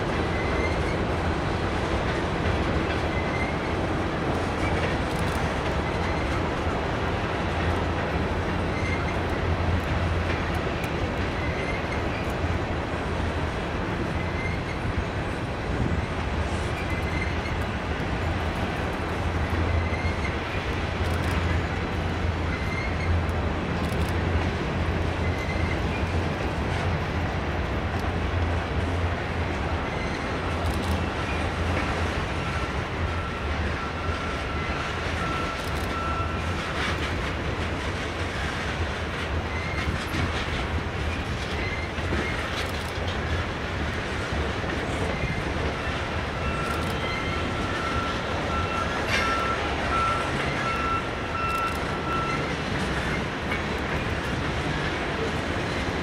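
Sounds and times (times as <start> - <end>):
freight train rumbling past: 0.0 - 56.0
high wheel squeal: 3.1 - 3.7, 8.7 - 9.2, 14.2 - 15.1, 16.8 - 17.6, 19.7 - 20.4, 22.5 - 23.2, 45.0 - 53.3.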